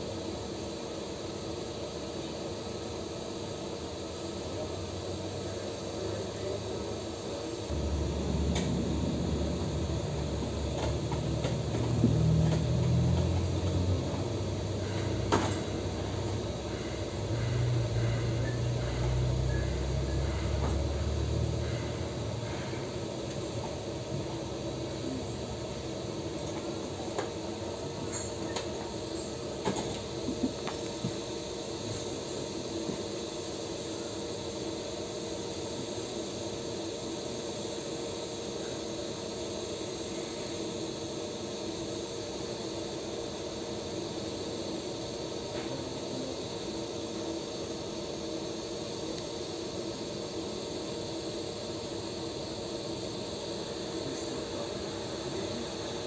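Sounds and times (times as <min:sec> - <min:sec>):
welding arc hissing: 0:00.0 - 0:56.0
low machine hum: 0:04.3 - 0:34.1.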